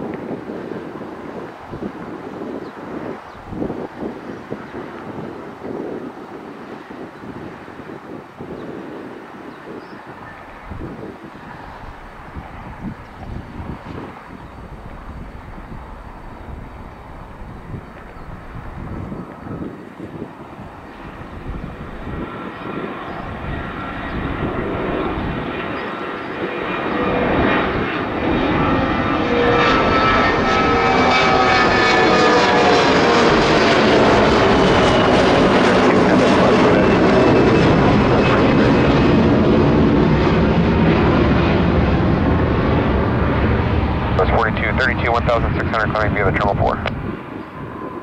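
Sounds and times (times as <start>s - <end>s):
jet engines roaring on takeoff: 0.0s - 48.0s.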